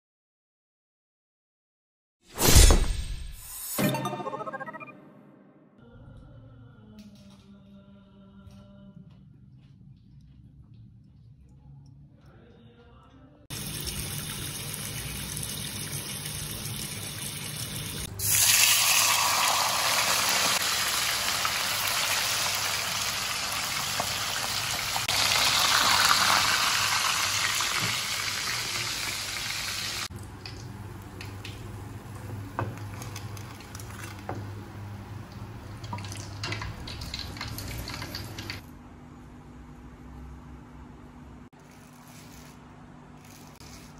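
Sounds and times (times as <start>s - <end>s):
fish deep-frying in oil: 17.8s - 38.6s.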